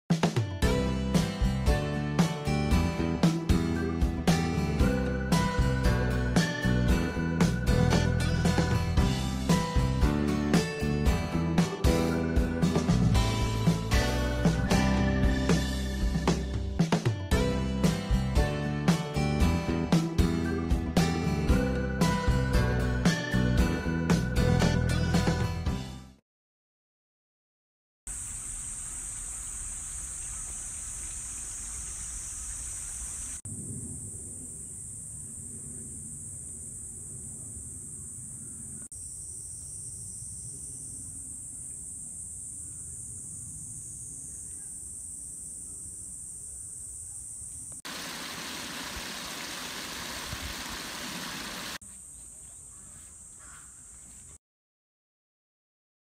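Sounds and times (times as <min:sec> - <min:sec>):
high-pitched insect chorus: 0:28.1 - 0:53.8
water rushing through spillway: 0:47.9 - 0:51.8.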